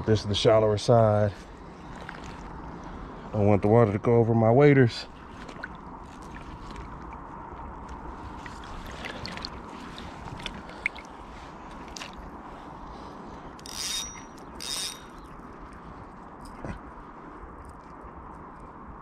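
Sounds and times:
fishing reel whirring: 13.6 - 15.4.

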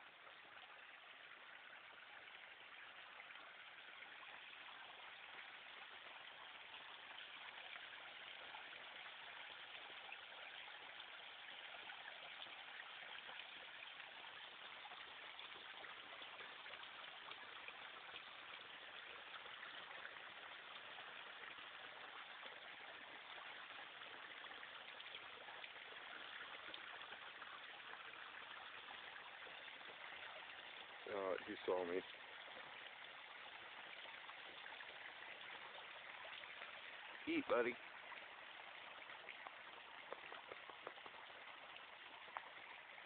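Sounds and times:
faint steady hiss: 0.0 - 43.0.

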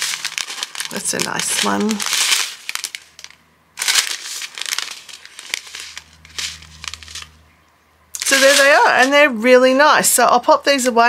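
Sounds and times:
plastic bags crinkling: 0.0 - 7.4, 8.2 - 9.4.

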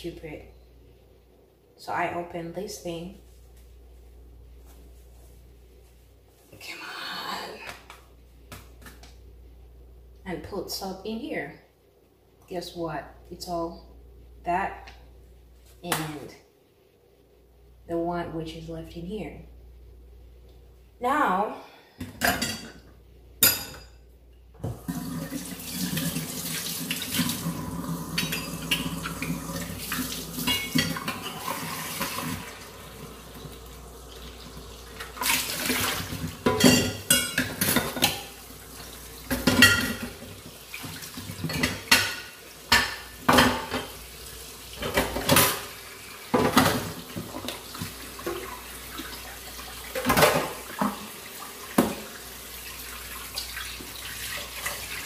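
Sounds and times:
tap water running into sink: 24.6 - 36.4
dishes and cutlery clinking: 36.5 - 38.3.

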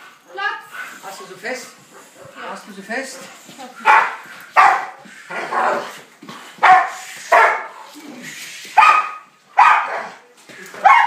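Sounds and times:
dog barking: 3.8 - 5.9, 6.6 - 7.8, 8.8 - 10.2.

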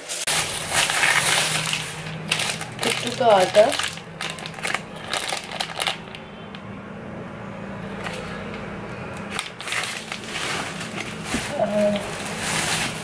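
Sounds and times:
plastic packaging crinkling: 0.1 - 6.6, 9.3 - 13.0.

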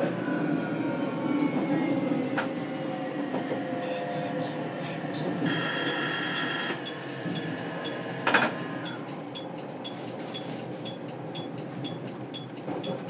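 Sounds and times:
train cabin hum: 6.7 - 13.0.

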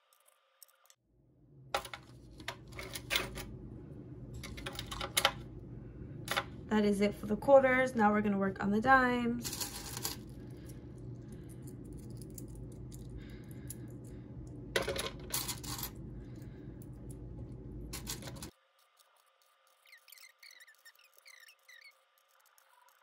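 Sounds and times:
low background hum: 0.0 - 23.0
coins clattering: 4.4 - 5.3, 9.4 - 10.4, 14.8 - 16.0, 17.9 - 18.5
coins clicking into plastic tray: 9.4 - 10.2, 14.8 - 15.9, 17.9 - 18.5.

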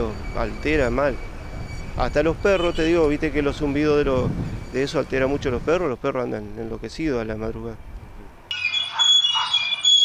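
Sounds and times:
turbine ventilator squealing: 0.0 - 6.8.

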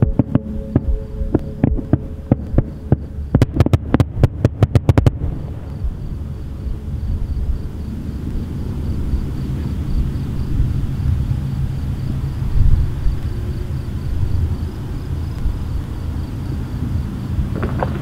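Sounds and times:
fireworks bangs: 0.0 - 6.2
low steady rumble: 0.0 - 18.0.

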